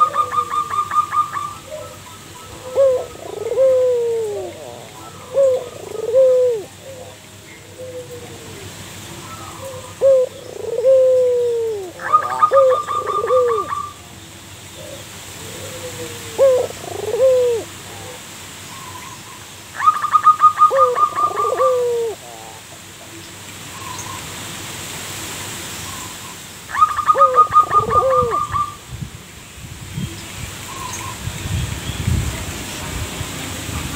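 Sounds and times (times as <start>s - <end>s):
dove cooing: 0.0s - 14.0s, 14.8s - 18.2s, 19.8s - 22.8s, 26.7s - 28.8s.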